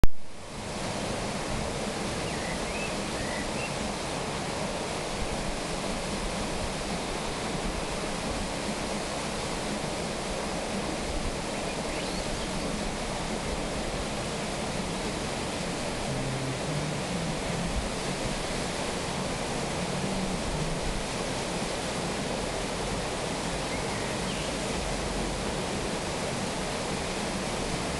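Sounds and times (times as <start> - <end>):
water rushing under a waterwheel: 0.0 - 27.9.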